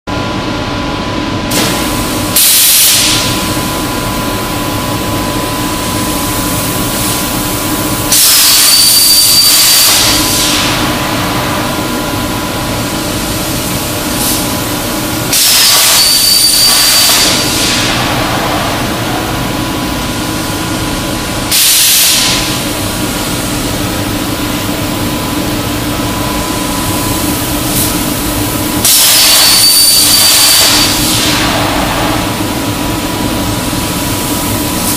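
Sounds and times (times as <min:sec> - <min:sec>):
steady machine hum: 0:00.1 - 0:34.9
plasma torch hissing with whistle: 0:01.6 - 0:03.6, 0:08.1 - 0:10.9, 0:15.3 - 0:18.0, 0:21.5 - 0:22.6, 0:28.8 - 0:32.2.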